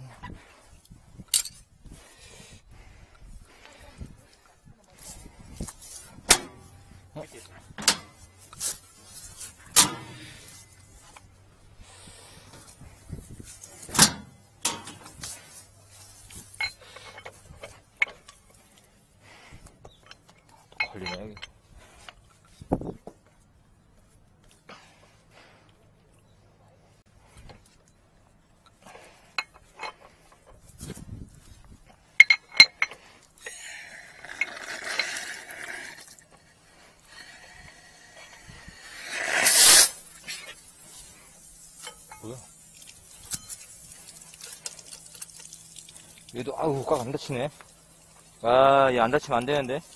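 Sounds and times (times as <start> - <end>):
metallic clinks and knocks: 1.3 - 1.7, 7.7 - 11.3, 13.4 - 18.6, 19.7 - 22.2, 28.6 - 31.1, 32.1 - 33.6, 41.4 - 46.2
light metal scraping: 2.8 - 23.0, 28.6 - 49.9
sharp metallic clinks: 19.9 - 21.6, 32.2 - 35.2, 41.4 - 45.9
pressurised water hissing from pipe: 35.2 - 49.9.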